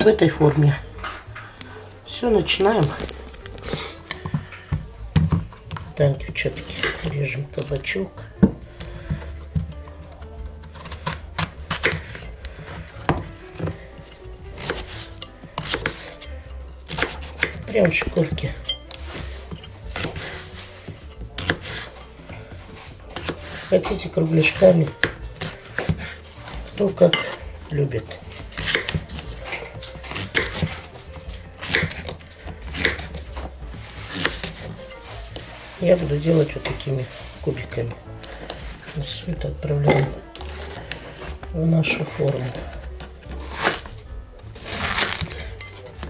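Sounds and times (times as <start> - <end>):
knife slicing on wooden board: 8.4 - 22.0, 22.7 - 23.9, 24.5 - 27.4, 28.3 - 35.8, 42.4 - 45.8.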